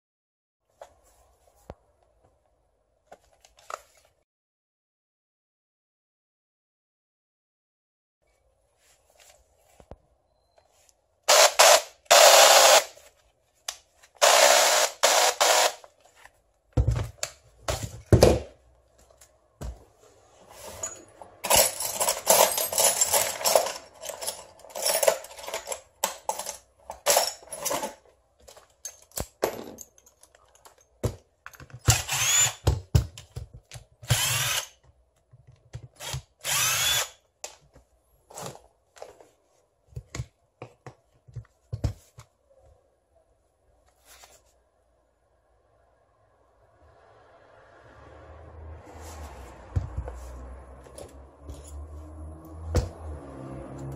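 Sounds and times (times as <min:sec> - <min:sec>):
cordless drill motor running: 0:11.3 - 0:12.9, 0:14.2 - 0:15.8, 0:31.9 - 0:32.6, 0:34.1 - 0:34.7, 0:36.0 - 0:37.2.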